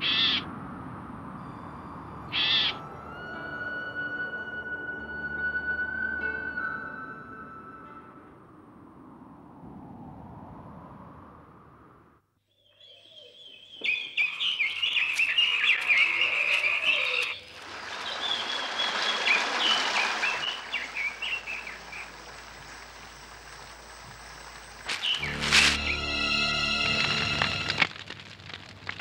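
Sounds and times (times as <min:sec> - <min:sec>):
birds calling: 0:00.0 - 0:00.5, 0:02.2 - 0:02.9, 0:12.5 - 0:23.6, 0:24.7 - 0:26.0
frogs calling: 0:00.0 - 0:00.5, 0:01.4 - 0:02.9, 0:12.8 - 0:25.4.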